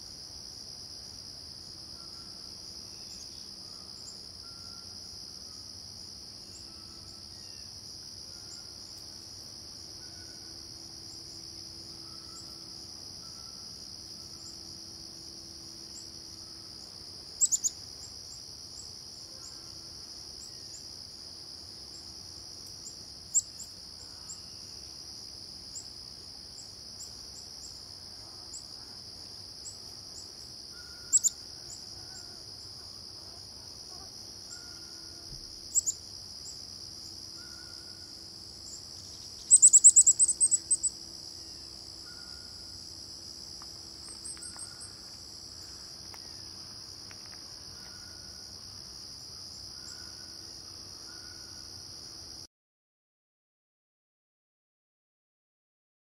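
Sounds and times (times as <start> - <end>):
insects droning: 0.0 - 52.5
high bird chirps: 39.4 - 40.7.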